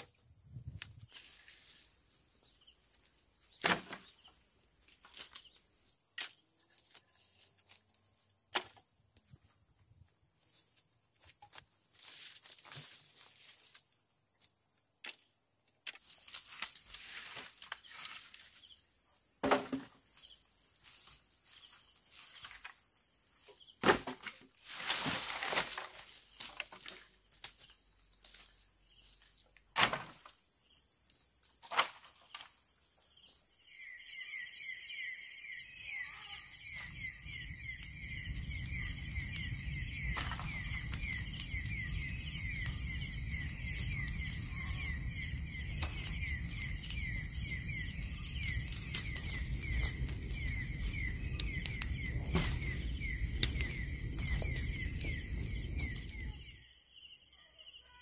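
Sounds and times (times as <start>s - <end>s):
insects chirping: 0.0s - 58.0s
louder insect chorus: 0.1s - 9.7s, 16.0s - 58.0s.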